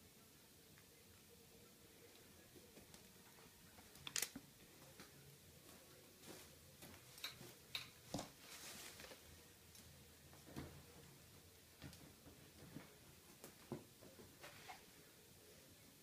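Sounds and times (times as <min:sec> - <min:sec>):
faint footsteps: 0:04.6 - 0:09.4
clothing rustle: 0:05.7 - 0:09.4, 0:11.8 - 0:15.1.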